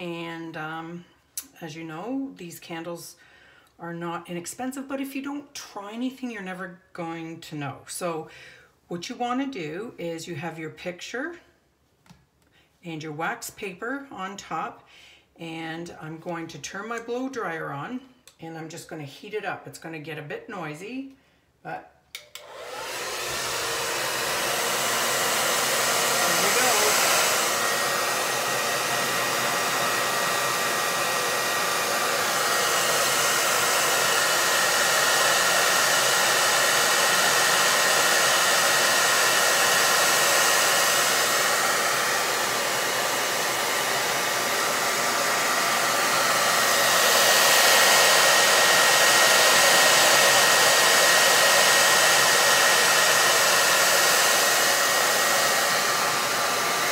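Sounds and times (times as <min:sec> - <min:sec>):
blow dryer running: 0:22.2 - 0:56.9.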